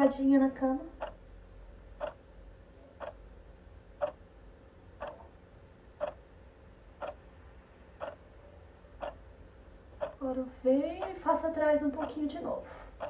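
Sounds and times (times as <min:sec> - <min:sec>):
clock ticking: 0:00.9 - 0:01.2, 0:02.0 - 0:02.3, 0:03.0 - 0:03.3, 0:04.0 - 0:04.2, 0:05.0 - 0:05.3, 0:06.0 - 0:06.2, 0:07.0 - 0:07.2, 0:08.0 - 0:08.2, 0:09.0 - 0:09.2, 0:09.9 - 0:10.3, 0:10.9 - 0:13.0.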